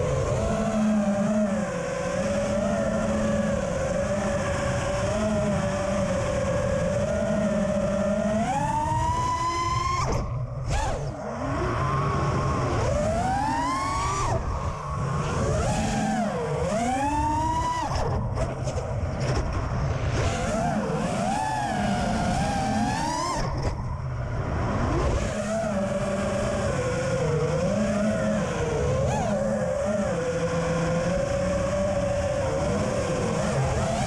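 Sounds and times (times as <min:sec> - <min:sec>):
drone motors whining: 0:00.0 - 0:34.0.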